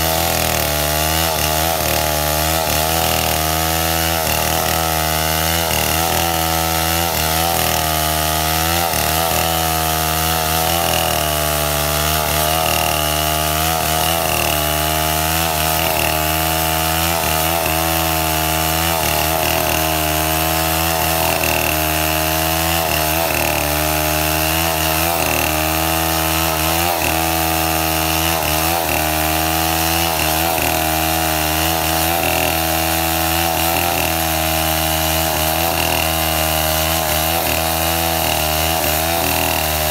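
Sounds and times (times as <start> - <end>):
chainsaw cutting wood: 0.0 - 39.9.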